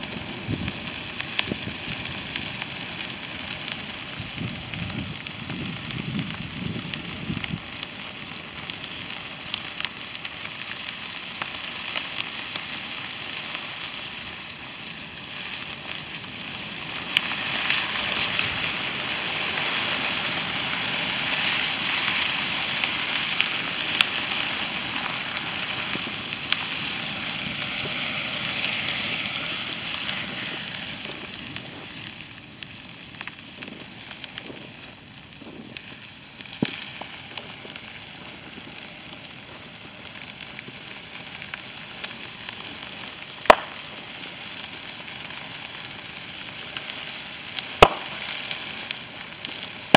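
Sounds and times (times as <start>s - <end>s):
fire crackling and popping: 0.0s - 49.9s.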